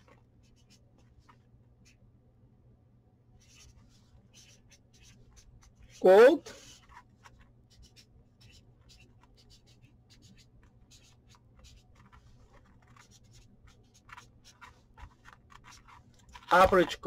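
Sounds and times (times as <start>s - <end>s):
marker scratching on paper: 0.0s - 2.0s, 3.4s - 17.0s.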